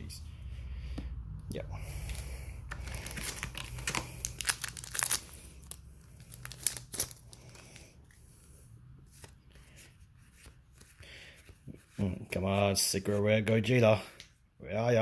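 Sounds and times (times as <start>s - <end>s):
foil wrapper tearing and crinkling: 2.9s - 7.5s.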